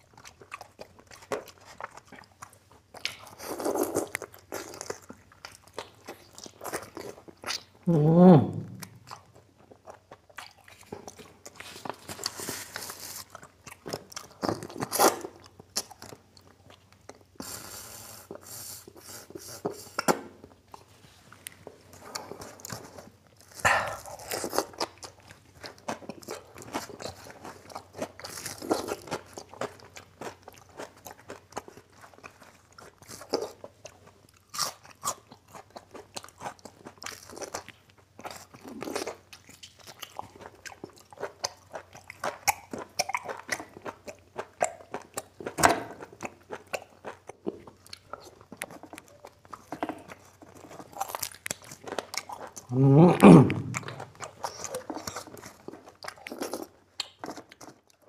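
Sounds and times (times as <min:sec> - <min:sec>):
person chewing food: 0:00.0 - 0:58.0
crunching of fried crisps: 0:08.9 - 0:17.4, 0:21.5 - 0:52.8, 0:53.6 - 0:58.0
mouth smacks: 0:23.6 - 0:24.6, 0:52.6 - 0:55.0.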